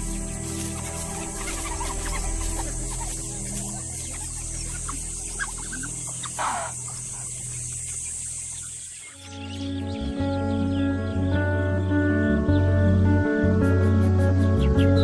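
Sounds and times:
high insect trill: 0.0 - 10.8
low sustained tones: 0.0 - 13.3
short clucking calls: 1.1 - 7.4.

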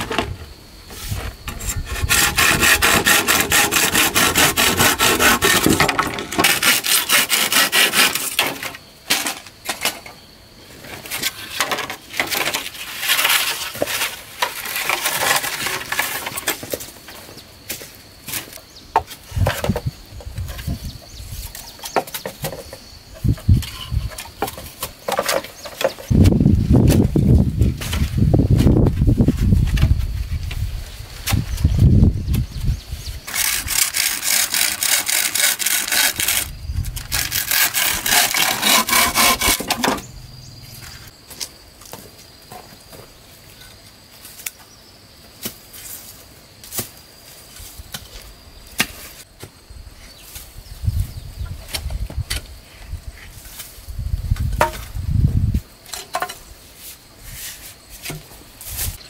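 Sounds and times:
rasping strokes on wood: 1.5 - 8.4, 33.3 - 36.5, 37.1 - 40.0.

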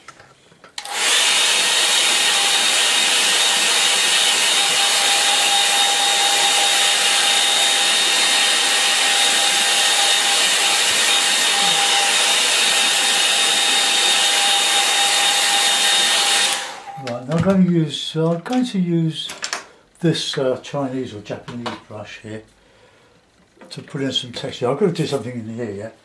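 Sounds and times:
hair dryer blowing: 0.8 - 17.3.

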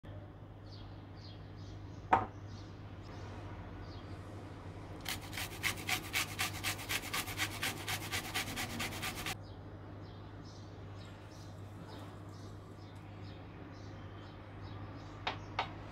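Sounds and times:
birds chirping faintly: 0.1 - 15.9
kitchen utensil scraping strokes: 5.1 - 9.4.

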